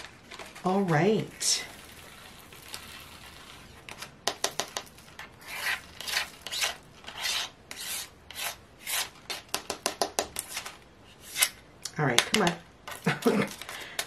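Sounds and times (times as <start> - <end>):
beads rattling in a plastic tray: 0.3 - 6.9.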